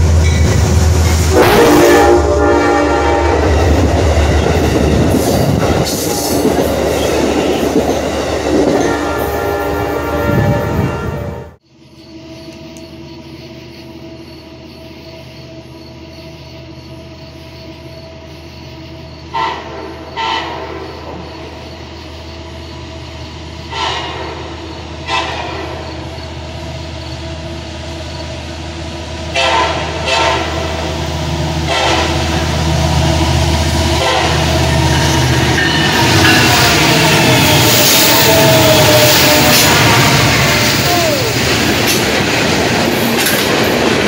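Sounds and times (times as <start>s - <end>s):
locomotive rumble: 0.0s - 44.0s
train air horn blasts: 1.2s - 4.0s, 8.6s - 11.6s, 19.3s - 21.0s, 23.7s - 25.8s, 29.3s - 30.9s, 31.5s - 32.5s, 33.8s - 41.6s.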